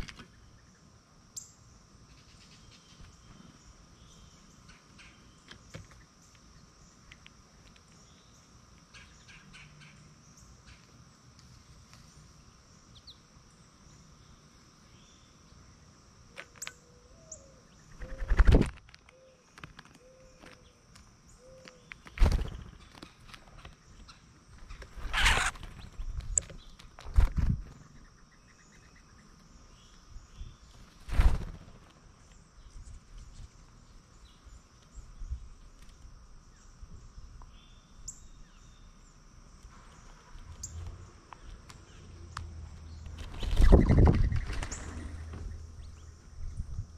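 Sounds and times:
birds fluttering and knocking: 0:00.0 - 0:00.4, 0:17.9 - 0:21.0, 0:21.6 - 0:28.0, 0:30.7 - 0:32.1, 0:42.6 - 0:45.8
faint bird chirps: 0:00.0 - 0:07.2, 0:12.0 - 0:18.4, 0:19.0 - 0:26.8, 0:27.6 - 0:35.6, 0:36.5 - 0:46.8
high insect drone: 0:00.0 - 0:46.9.

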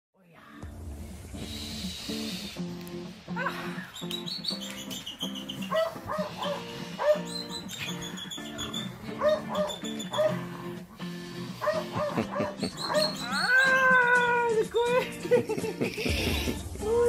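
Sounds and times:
music with a steady beat: 0:00.6 - 0:12.7, 0:13.7 - 0:17.0
puppy yipping and whining: 0:04.0 - 0:10.4, 0:11.6 - 0:14.3.

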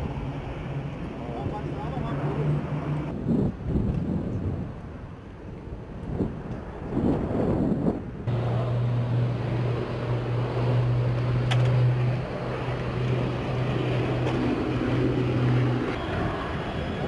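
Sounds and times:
rumbling wash: 0:00.0 - 0:17.0
low mechanical hum: 0:08.3 - 0:17.0.

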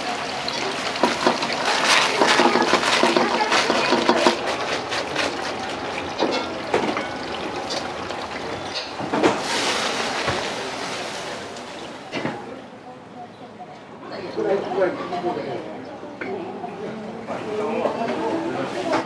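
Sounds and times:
liquid sizzling and bubbling: 0:00.0 - 0:12.2
ladle scraping a wok: 0:00.5 - 0:11.9.

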